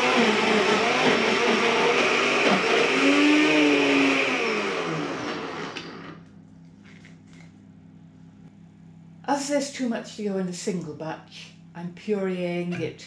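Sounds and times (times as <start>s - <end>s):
blender motor whirring: 0.0s - 6.2s.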